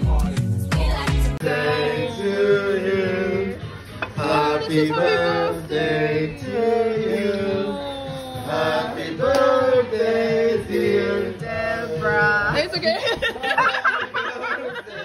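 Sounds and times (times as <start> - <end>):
group singing unaccompanied: 1.4 - 12.7.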